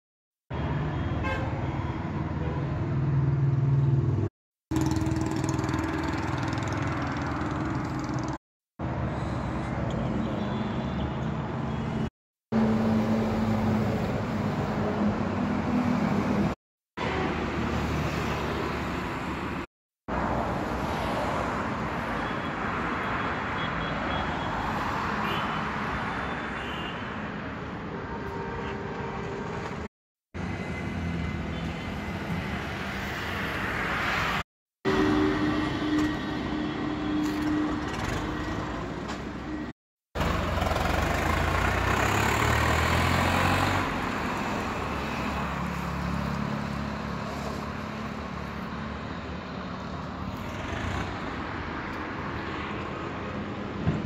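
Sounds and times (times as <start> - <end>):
vehicle engine humming: 4.1 - 9.0.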